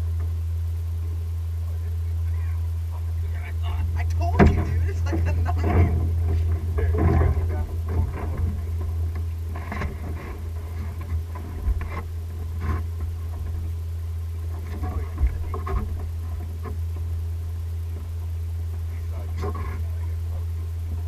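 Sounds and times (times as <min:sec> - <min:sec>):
low hum: 0:00.0 - 0:21.0
knocks and taps on boat deck: 0:04.3 - 0:10.0.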